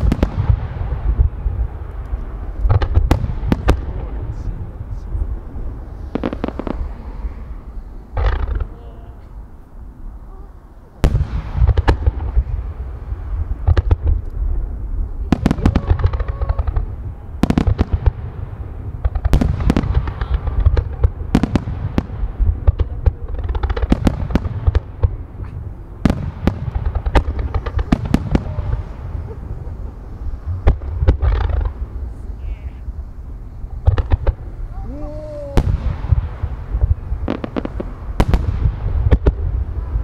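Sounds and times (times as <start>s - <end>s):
fireworks bursting with sharp bangs: 0.0s - 40.0s
low rumble: 0.0s - 40.0s.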